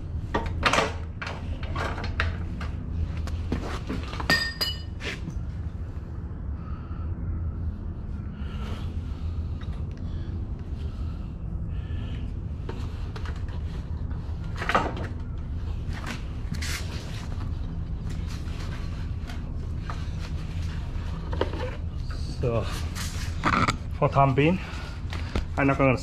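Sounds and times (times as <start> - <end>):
steady low hum: 0.0 - 26.0
metallic clink: 4.3 - 4.9.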